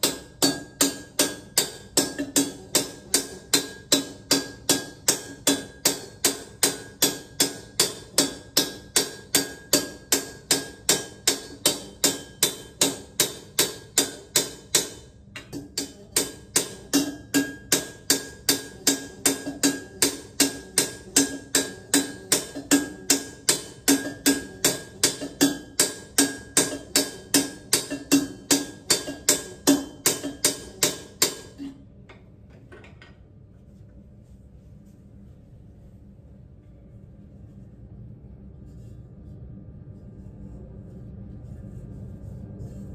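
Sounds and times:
hammer ringing on copper: 0:00.0 - 0:31.8.

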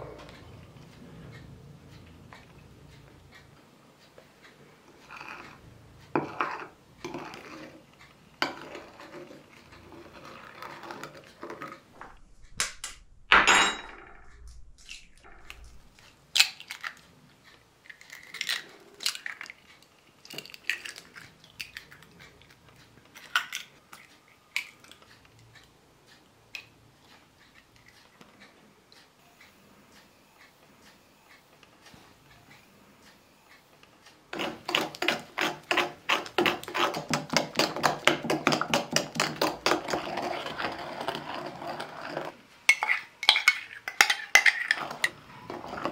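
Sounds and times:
spoon scraping a ceramic bowl: 0:04.8 - 0:11.9, 0:34.3 - 0:45.9
dishes clinking: 0:13.3 - 0:14.1, 0:42.7 - 0:45.9
eggshells cracking on a bowl rim: 0:17.8 - 0:22.1.

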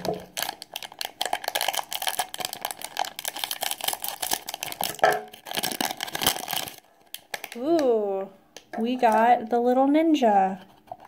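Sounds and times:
foil bag crinkling: 0:00.0 - 0:07.8.

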